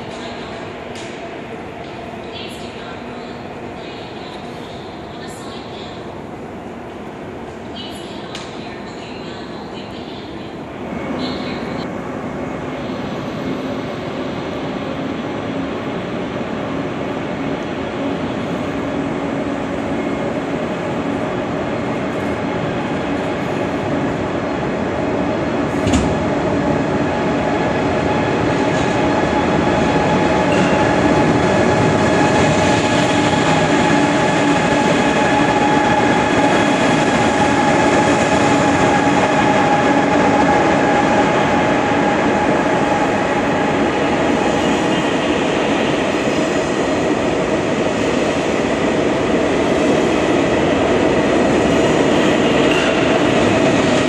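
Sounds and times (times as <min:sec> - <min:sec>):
train wheels rumbling: 0:17.9 - 0:54.0.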